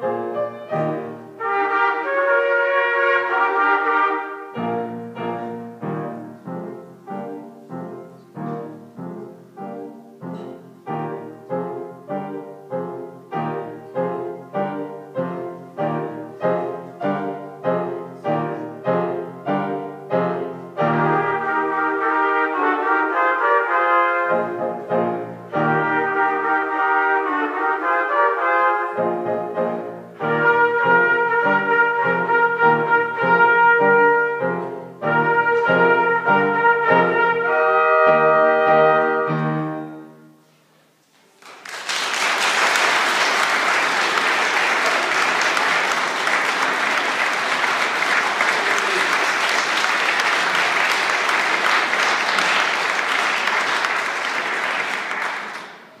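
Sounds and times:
brass section playing a march: 0:00.0 - 0:07.9, 0:10.9 - 0:40.3
audience applause: 0:41.4 - 0:56.0.

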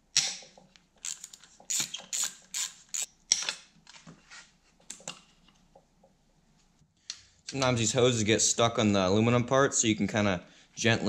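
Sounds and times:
ratchet wrench clicking: 0:01.0 - 0:03.1.

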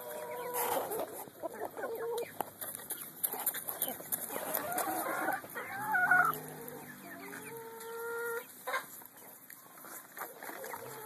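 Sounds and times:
chickens clucking: 0:00.0 - 0:11.0
long drawn-out chicken call: 0:04.5 - 0:08.9.

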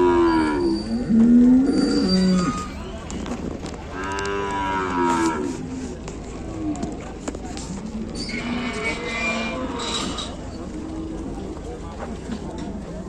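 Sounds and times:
cattle mooing: 0:00.0 - 0:02.7, 0:03.9 - 0:05.6, 0:08.2 - 0:10.4.

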